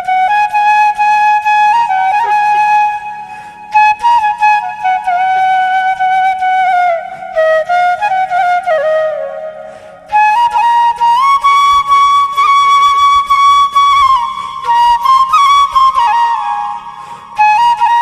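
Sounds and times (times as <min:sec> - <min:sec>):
solo flute melody: 0:00.0 - 0:18.0.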